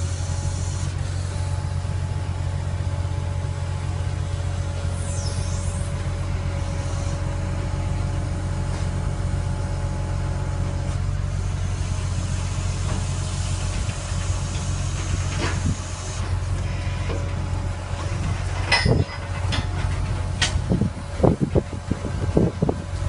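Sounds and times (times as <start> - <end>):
hydraulic whine: 0.0 - 23.0
truck engine humming: 0.0 - 23.0
short sliding squeak: 4.9 - 5.9.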